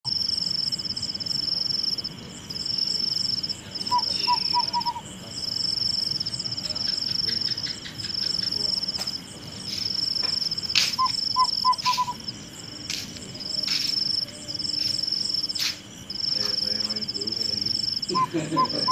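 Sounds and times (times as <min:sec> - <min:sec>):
crickets trilling: 0:00.0 - 0:18.9
small animal chirps: 0:03.8 - 0:05.1, 0:06.6 - 0:09.0, 0:09.6 - 0:12.2.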